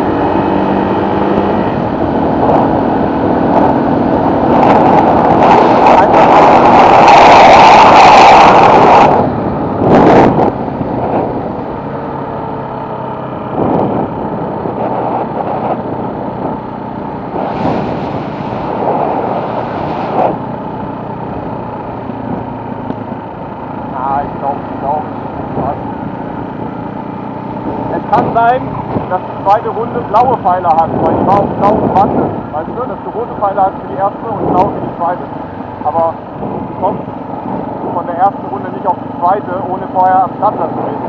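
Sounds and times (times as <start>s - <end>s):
wind rushing over microphone: 0.0s - 41.0s
moped engine running: 18.2s - 41.0s.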